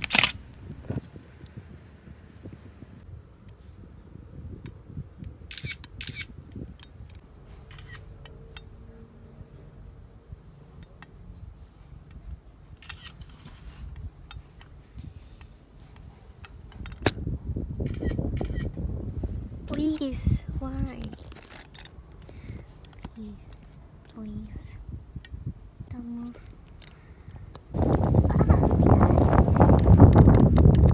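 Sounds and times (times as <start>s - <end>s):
phone camera shutter: 0.0s - 0.4s, 5.5s - 6.3s, 7.7s - 8.1s, 12.8s - 13.4s, 17.9s - 18.7s.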